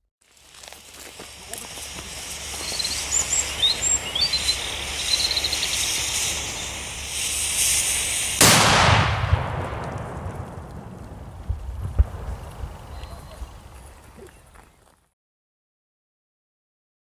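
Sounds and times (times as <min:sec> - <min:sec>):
firecracker fuse hissing: 0:00.2 - 0:15.1
birds chirping: 0:01.4 - 0:07.0, 0:12.8 - 0:15.0
firecracker bang: 0:03.8 - 0:14.0.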